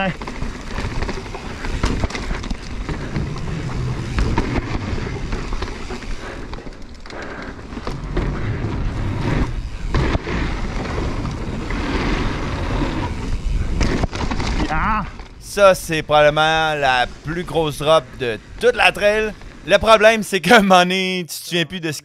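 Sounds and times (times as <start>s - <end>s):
steady rushing noise: 0.0s - 14.6s, 15.4s - 20.1s
bike rattle and knocks: 0.0s - 15.4s
bike clattering over wooden planks: 0.0s - 15.6s, 16.2s - 19.7s
bike tyres rolling over dirt: 0.0s - 20.2s.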